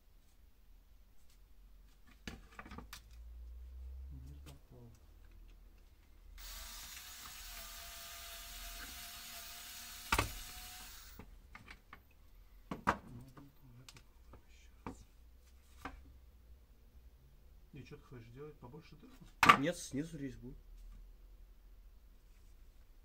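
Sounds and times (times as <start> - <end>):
small power tool whining: 6.4 - 11.2.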